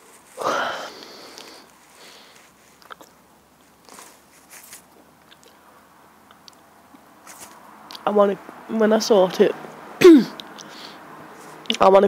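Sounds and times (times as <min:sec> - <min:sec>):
person exhaling breathily: 0:00.4 - 0:02.4.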